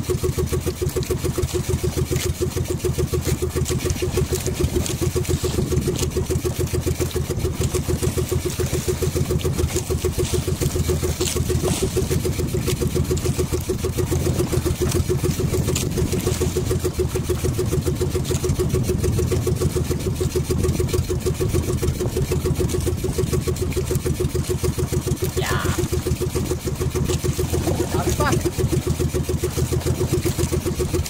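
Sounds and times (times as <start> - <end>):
boat engine pulsing: 0.0 - 31.0.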